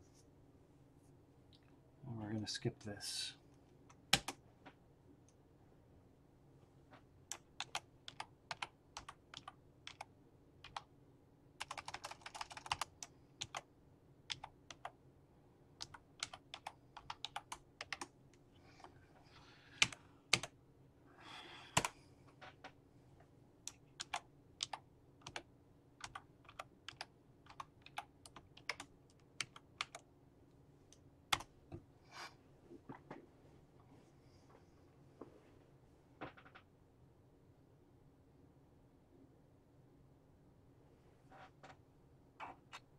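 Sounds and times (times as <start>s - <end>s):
keyboard typing: 4.1s - 4.4s, 7.3s - 10.9s, 11.6s - 13.7s, 14.3s - 15.0s, 15.8s - 18.1s, 19.8s - 20.6s, 23.7s - 30.1s.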